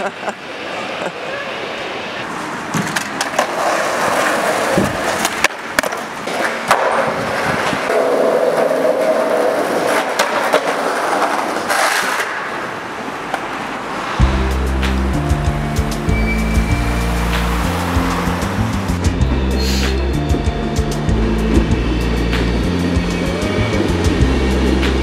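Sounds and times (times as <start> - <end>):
skateboard wheels rolling on pavement: 0.1 - 25.0
skateboard clacks on ground: 2.7 - 13.6.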